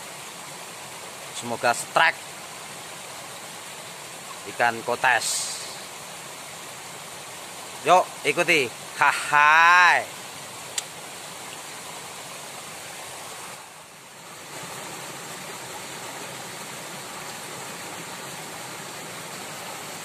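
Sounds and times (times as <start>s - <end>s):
rushing water: 0.0s - 20.0s
small click: 10.7s - 10.9s.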